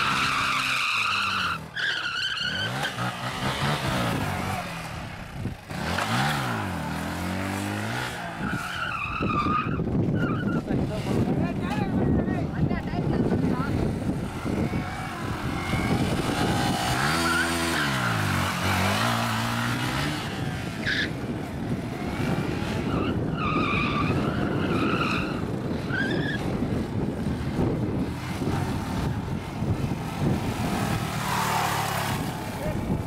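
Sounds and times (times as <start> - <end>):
tyre squeals: 0.0 - 3.1, 8.4 - 10.7, 22.8 - 26.4
motorcycle engine revving: 2.5 - 9.2, 13.2 - 23.4, 25.3 - 33.0
wind noise: 3.3 - 33.0.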